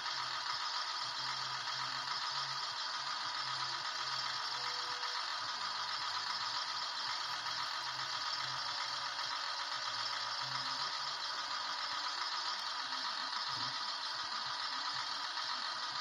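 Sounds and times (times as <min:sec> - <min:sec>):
model crane motor running: 0:00.0 - 0:16.0.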